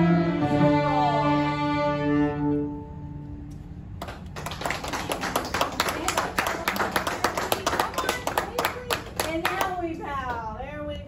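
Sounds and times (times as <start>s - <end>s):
string ensemble bowed chord: 0.0s - 3.5s
audience applause: 4.0s - 9.8s.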